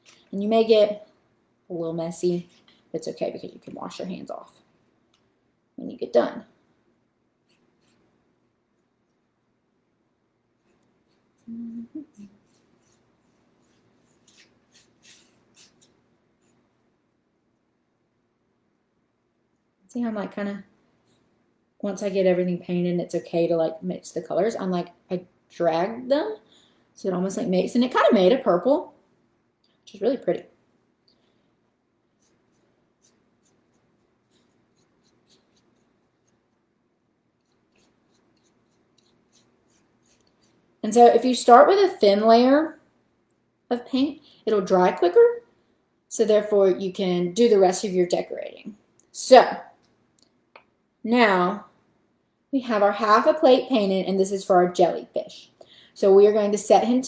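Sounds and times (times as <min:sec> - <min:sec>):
paintbrush brushing on paper plate: 0:07.4 - 0:09.3, 0:10.5 - 0:16.9, 0:32.1 - 0:36.7, 0:37.4 - 0:41.3
person humming low: 0:11.5 - 0:12.3.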